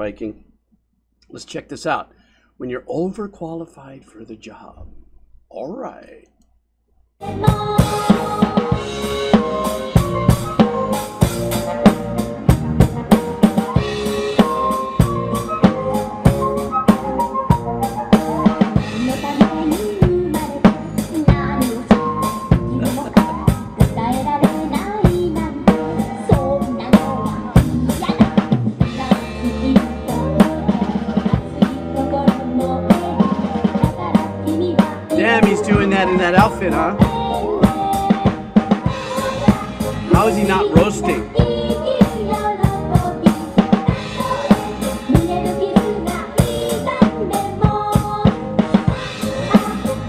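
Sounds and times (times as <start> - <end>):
drum kit played hard: 7.2 - 50.0
live band music: 7.2 - 50.0.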